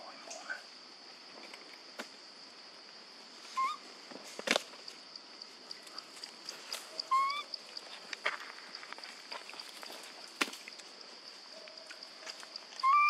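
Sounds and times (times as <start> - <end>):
high insect drone: 0.0 - 13.0
macaque coo calls: 3.5 - 3.8, 6.9 - 7.8, 12.8 - 13.0.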